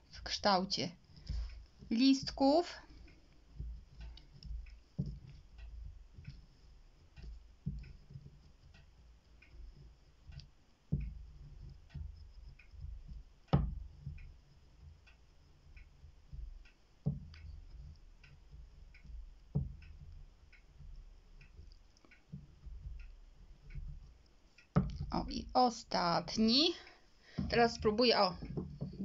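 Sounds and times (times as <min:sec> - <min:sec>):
faint steady ticking: 0:00.0 - 0:29.0
dull knocks: 0:27.3 - 0:29.0.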